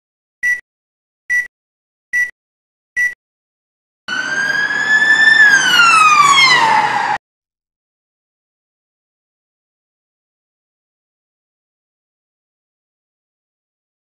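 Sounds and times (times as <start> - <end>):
countdown beeps: 0.4 - 0.6, 1.3 - 1.5.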